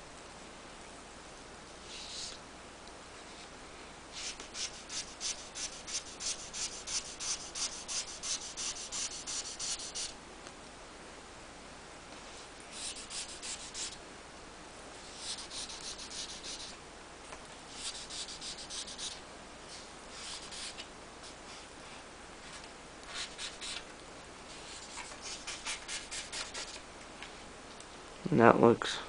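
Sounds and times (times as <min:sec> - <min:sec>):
rubbing strokes on plastic film: 0:01.9 - 0:02.4, 0:04.1 - 0:10.2, 0:12.7 - 0:14.0, 0:15.1 - 0:16.8, 0:17.7 - 0:21.7, 0:22.4 - 0:23.9, 0:24.5 - 0:26.8.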